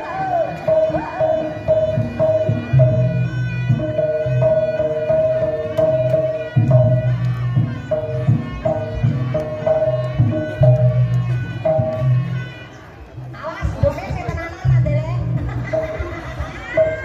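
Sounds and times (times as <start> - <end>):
high-pitched repeating note: 0.5 - 12.4.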